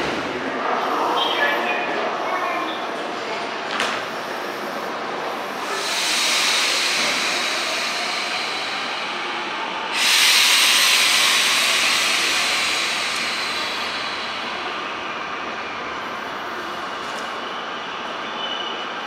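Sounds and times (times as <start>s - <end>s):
electric train inverter whine: 4.8s - 19.0s
compressed air hiss burst: 5.6s - 15.1s.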